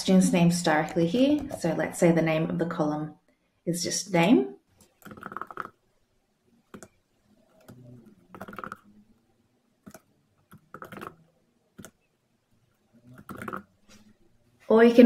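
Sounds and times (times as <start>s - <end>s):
faint keyboard typing: 4.8s - 5.8s, 6.7s - 9.0s, 9.8s - 12.1s, 12.7s - 13.7s.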